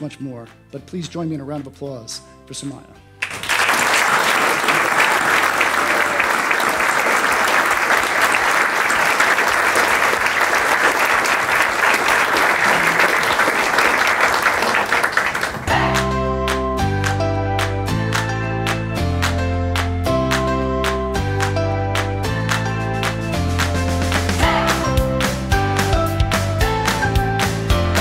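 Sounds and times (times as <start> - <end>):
crowd applauding: 3.2 - 17.2.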